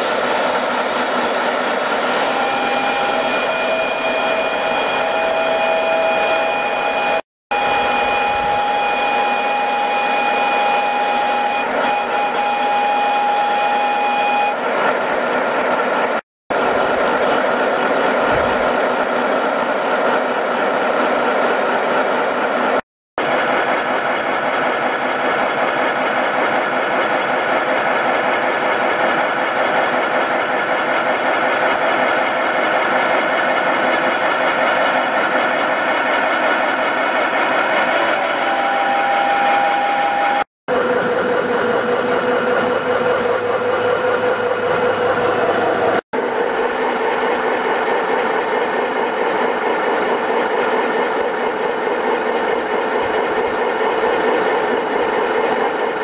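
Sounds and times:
steam locomotive hissing: 0:00.0 - 0:14.2.

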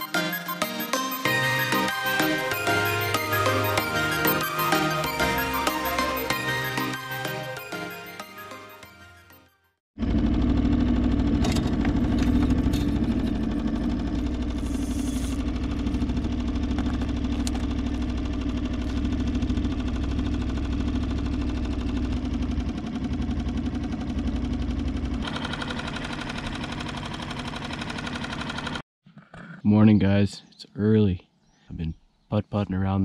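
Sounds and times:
outboard motor putt-putt: 0:10.0 - 0:28.8.

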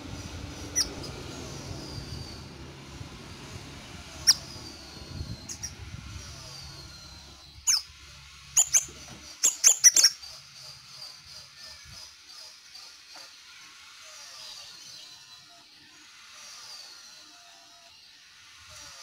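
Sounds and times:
bird high whistles: 0:00.5 - 0:02.6, 0:04.1 - 0:07.9, 0:08.6 - 0:10.2.

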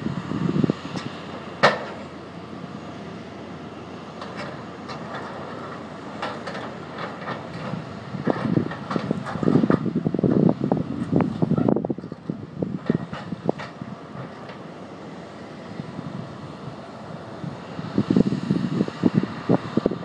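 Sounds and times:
wind buffeting microphone: 0:00.0 - 0:01.3, 0:06.4 - 0:14.3, 0:15.7 - 0:20.0
excavator machine noise: 0:00.0 - 0:20.0.

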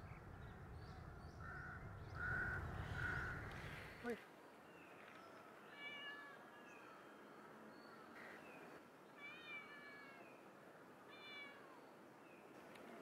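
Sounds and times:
cat meowing faintly: 0:09.2 - 0:10.4.

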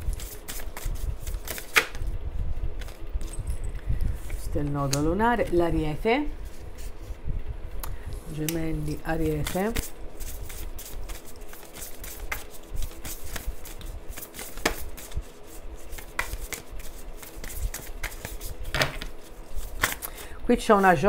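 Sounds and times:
faint steady hum: 0:00.0 - 0:21.0
playing cards shuffling: 0:00.1 - 0:02.0, 0:09.2 - 0:20.2.

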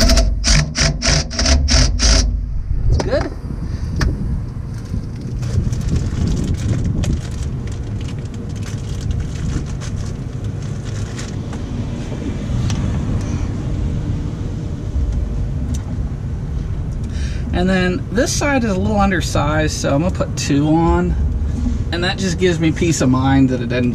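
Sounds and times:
low outdoor rumble: 0:00.0 - 0:23.9
plastic rustling: 0:04.7 - 0:11.5.

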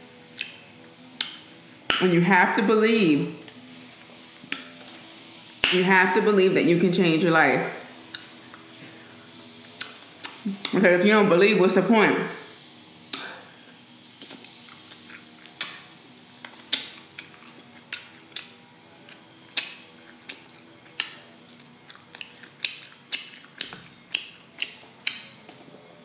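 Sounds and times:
biting and chewing ribs: 0:13.1 - 0:26.0.

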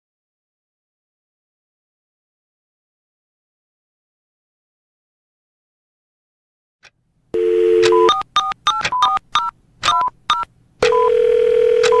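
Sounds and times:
telephone dial tone: 0:07.4 - 0:12.0
touch-tone keypad beeps: 0:07.4 - 0:12.0.

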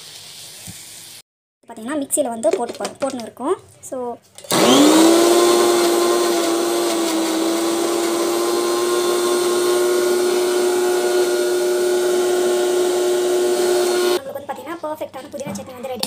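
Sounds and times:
mixer grinder motor hum: 0:04.5 - 0:14.2.

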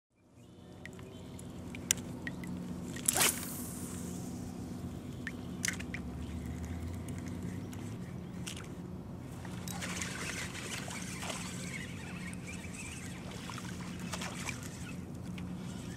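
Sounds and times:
steady low hum: 0:00.1 - 0:15.9
rod swish: 0:03.0 - 0:04.4.

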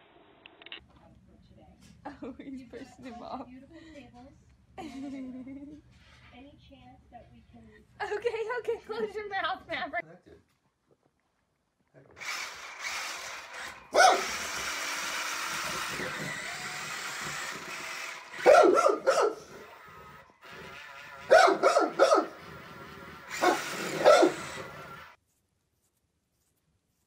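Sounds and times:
small electric motor whirring: 0:12.2 - 0:25.2
large dog barking: 0:13.9 - 0:14.4, 0:18.4 - 0:19.6, 0:21.3 - 0:22.4, 0:23.4 - 0:24.5.

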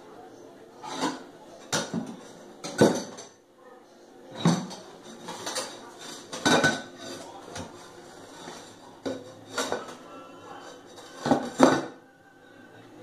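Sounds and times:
dishes clattering in metal sink: 0:00.8 - 0:03.4, 0:04.3 - 0:12.0.

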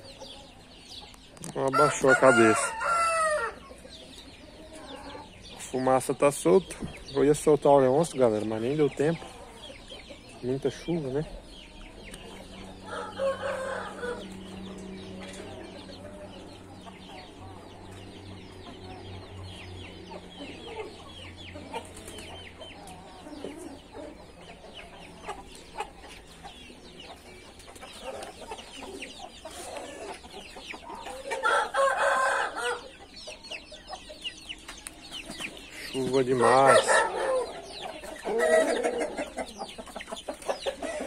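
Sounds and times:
chickens clucking: 0:00.0 - 0:41.0
chicks peeping: 0:00.0 - 0:41.0
rooster crowing: 0:01.7 - 0:03.6, 0:12.8 - 0:14.4, 0:31.4 - 0:32.9.

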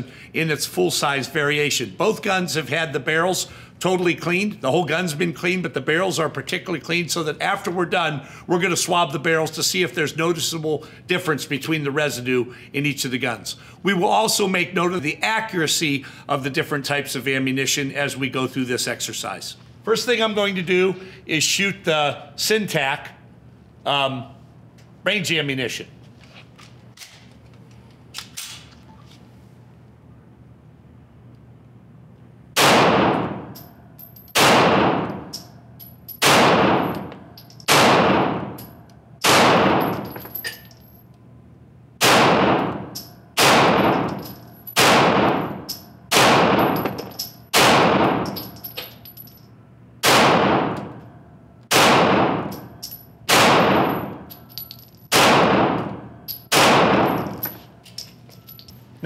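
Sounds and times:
pistol shots echoing indoors: 0:32.6 - 0:35.5, 0:36.2 - 0:40.2, 0:42.0 - 0:48.6, 0:50.0 - 0:54.3, 0:55.1 - 0:57.6.

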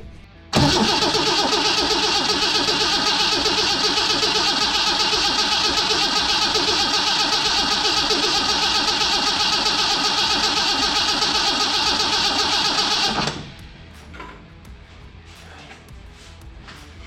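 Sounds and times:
engine cranking on starter motor: 0:00.6 - 0:13.6.

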